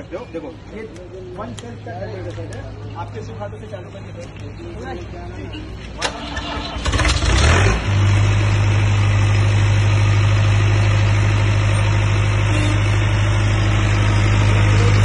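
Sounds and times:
diesel generator running: 6.0 - 15.0.

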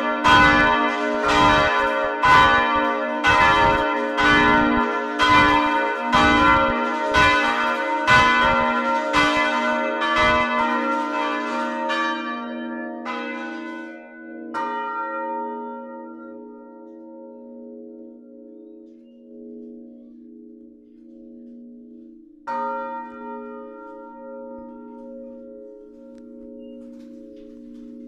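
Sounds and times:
church bells ringing: 0.0 - 28.0
bells humming: 17.7 - 28.0.

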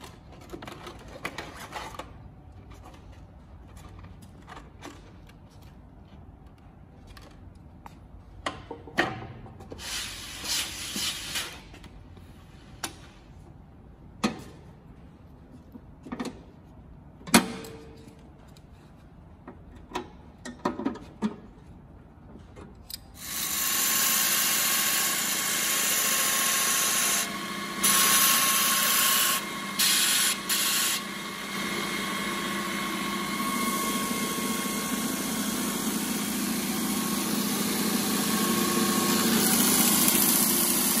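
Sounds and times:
belt sander motor humming: 23.2 - 41.0.

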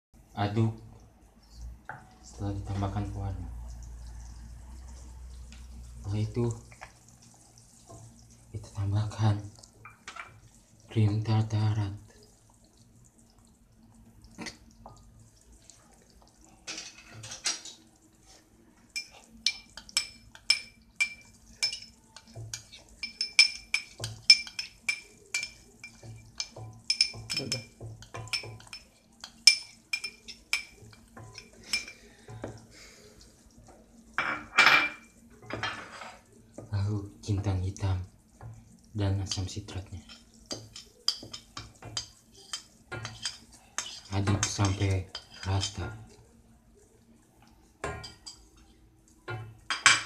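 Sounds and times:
ringing kitchenware taps: 19.0 - 28.8.

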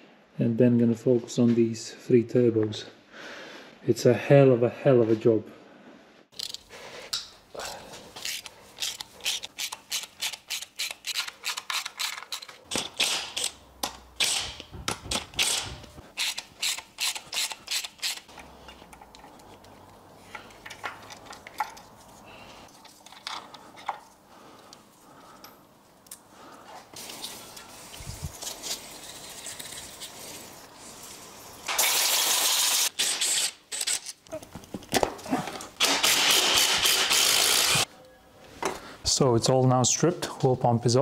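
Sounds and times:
tools and parts clicking and tapping: 6.3 - 7.4, 8.2 - 24.7, 33.1 - 37.2
hand ratchet clicking: 8.2 - 18.4, 35.8 - 37.9.

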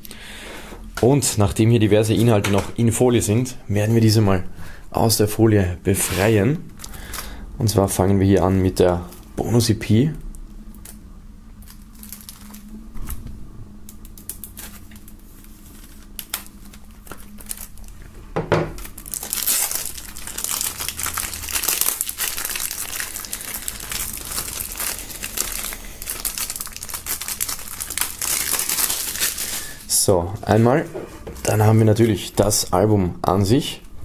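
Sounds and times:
plastic film crinkling: 6.2 - 7.4, 11.6 - 30.7.

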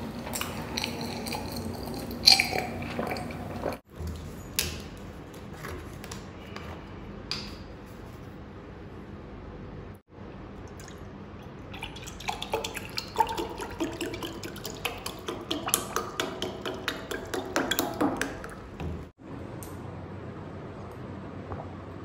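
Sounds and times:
juice pouring into glass: 0.2 - 3.8, 11.7 - 17.6.

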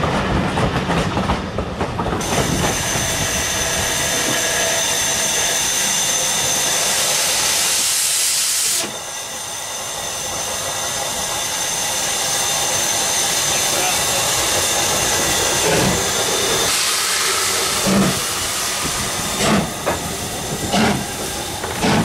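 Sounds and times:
steam locomotive hissing: 2.2 - 22.0.

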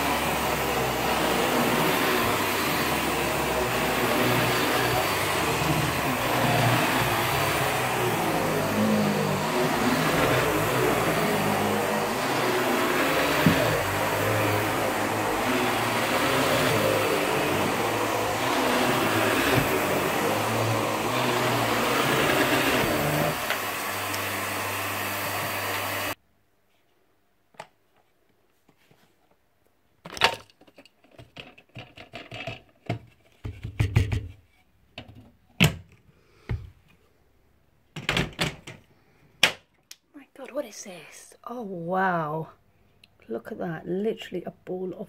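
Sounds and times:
vacuum cleaner running on carpet: 0.0 - 26.2.

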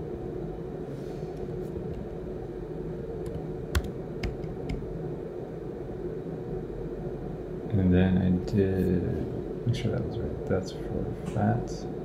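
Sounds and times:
steady low hum: 0.0 - 12.0
computer keyboard key presses: 3.3 - 4.8.

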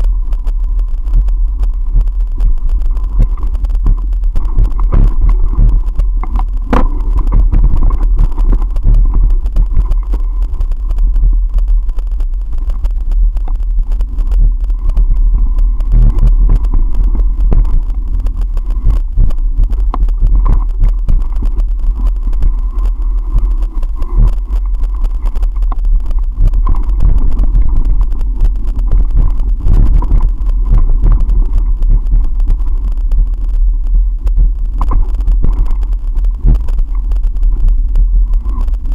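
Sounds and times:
bike riding low rumble: 0.0 - 38.9
camera knocking and rattling: 3.3 - 10.0.

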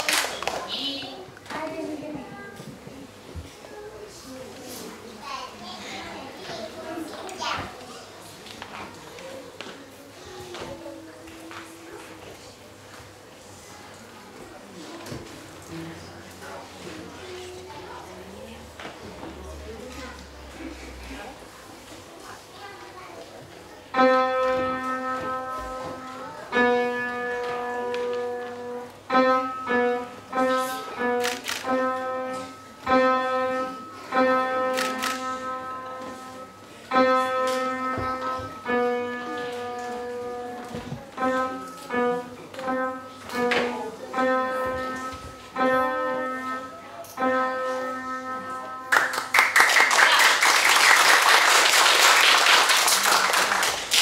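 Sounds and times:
applause: 0.0 - 0.7, 48.9 - 54.0
keyboard tune: 24.0 - 49.3.

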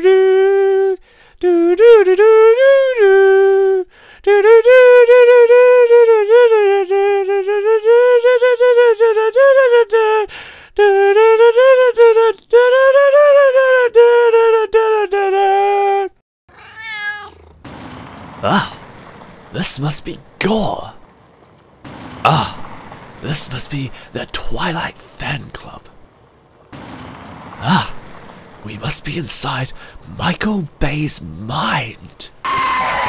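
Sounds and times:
person humming a tune: 0.0 - 16.2.

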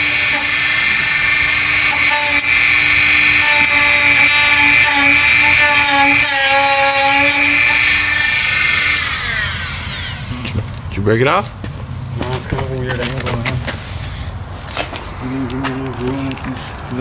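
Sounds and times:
rotary tool whining: 0.0 - 10.9.

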